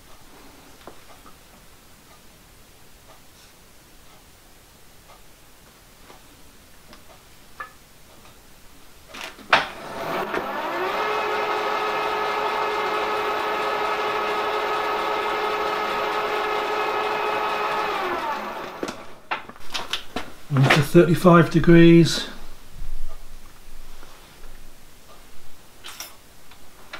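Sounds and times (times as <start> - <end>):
milling machine motor whine: 9.8 - 19.2.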